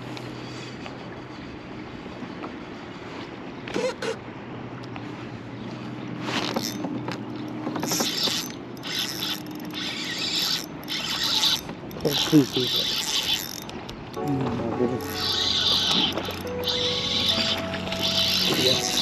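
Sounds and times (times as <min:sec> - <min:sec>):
fishing reel whirring and ratcheting: 0:06.4 - 0:06.8, 0:07.8 - 0:14.2, 0:15.0 - 0:19.0.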